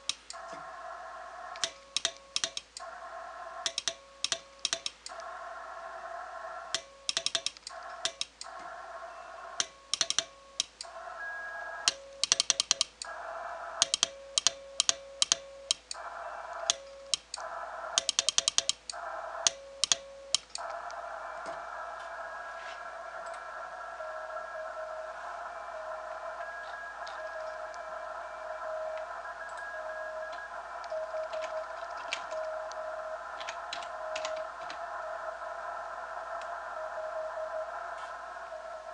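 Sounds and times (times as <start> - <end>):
morse key clicking: 3.6 - 5.1, 7.1 - 8.4, 9.6 - 10.8
radio hiss: 13.0 - 14.0, 15.9 - 18.0, 18.9 - 38.9
morse sidetone beep: 24.0 - 33.0.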